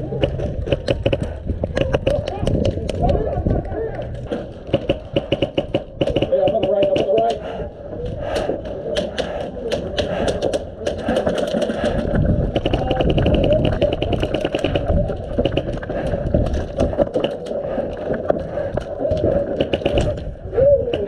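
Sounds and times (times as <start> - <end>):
airsoft gun full-auto burst: 4.7 - 6.9, 12.6 - 15.8.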